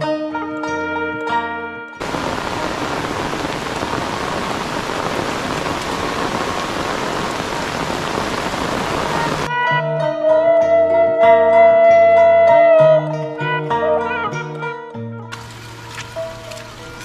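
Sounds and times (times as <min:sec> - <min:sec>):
heavy rain on leaves: 0:02.0 - 0:09.5, 0:15.3 - 0:17.0.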